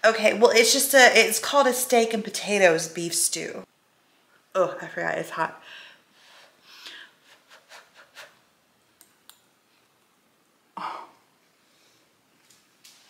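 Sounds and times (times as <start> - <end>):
person blowing and breathing: 5.8 - 8.4.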